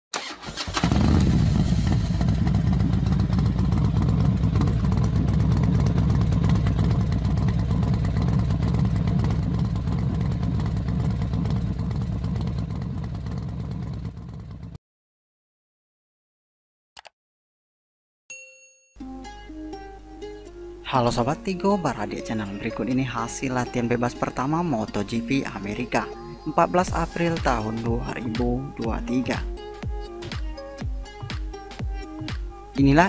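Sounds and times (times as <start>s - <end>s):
racing motorcycle engine: 0.6s - 14.8s.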